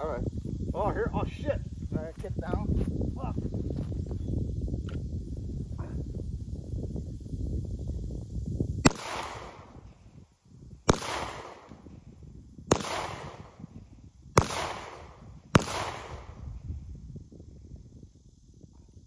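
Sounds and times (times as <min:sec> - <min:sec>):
handgun shots with echo: 0:08.9 - 0:09.7, 0:10.9 - 0:11.8, 0:12.7 - 0:13.5, 0:14.4 - 0:16.3.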